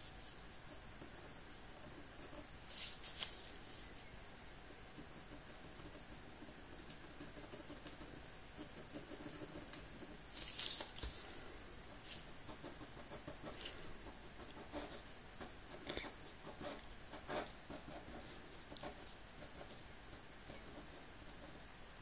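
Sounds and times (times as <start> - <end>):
pen scratching on paper: 5.0 - 10.2, 11.9 - 19.8.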